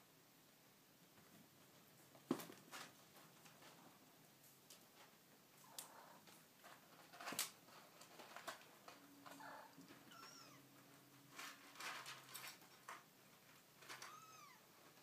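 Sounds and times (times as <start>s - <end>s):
kittens scuffling: 1.1s - 15.0s.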